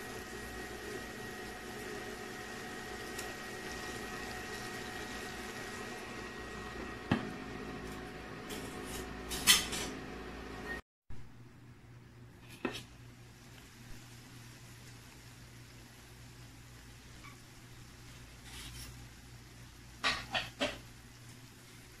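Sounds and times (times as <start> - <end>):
shrimp sizzling in butter: 0.0 - 6.8
cooktop hum with high whine: 0.0 - 22.0.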